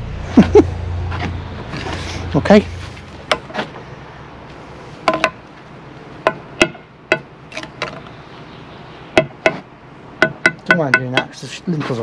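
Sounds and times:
metal tool knocking on concrete: 10.2 - 11.4.

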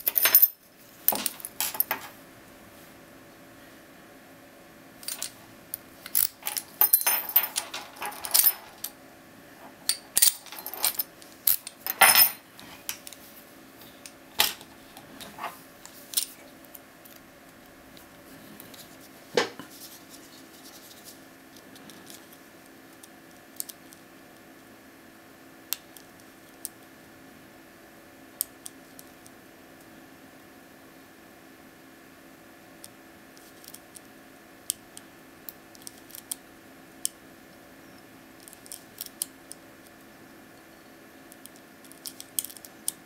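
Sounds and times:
key and padlock clinking: 6.1 - 8.9, 9.9 - 12.4.

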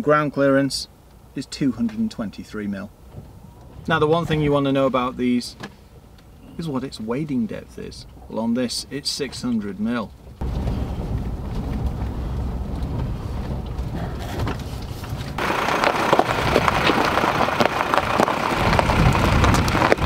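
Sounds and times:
engine and tyres rumbling: 0.0 - 20.0
tyres crunching over stones: 10.4 - 20.0.

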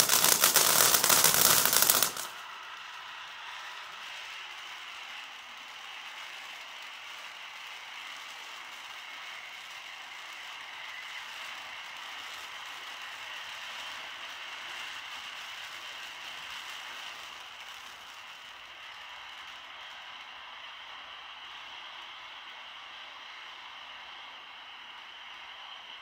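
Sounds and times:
firework fountain hissing and crackling: 0.0 - 26.0.

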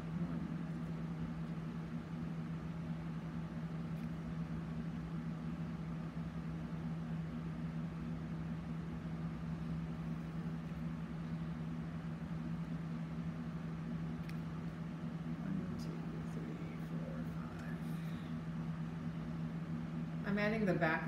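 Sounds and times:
machine humming: 0.0 - 21.0.

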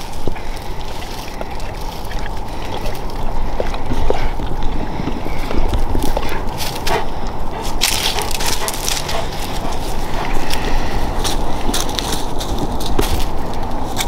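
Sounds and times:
paws rustling through dry leaves: 0.0 - 14.0
wind buffeting microphone: 0.0 - 14.0.

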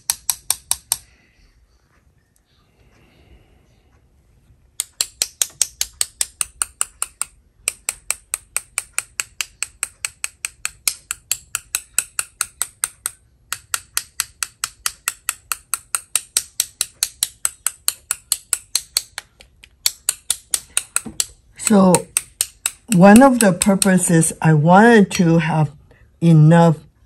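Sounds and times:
paint brush tapping: 0.0 - 1.2, 4.8 - 25.2.

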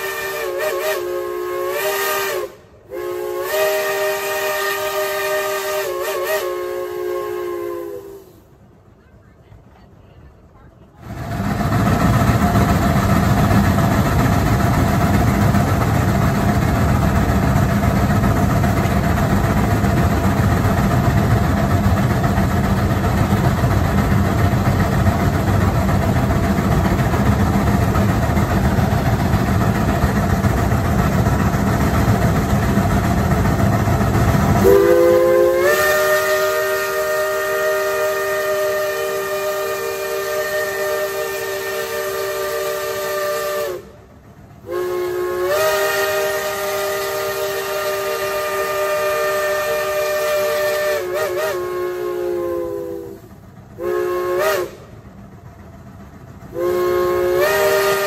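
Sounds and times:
steam locomotive whistle: 0.0 - 8.6, 33.9 - 55.0, 56.5 - 58.0
steam locomotive rushing hiss: 0.0 - 9.0, 9.9 - 58.0.

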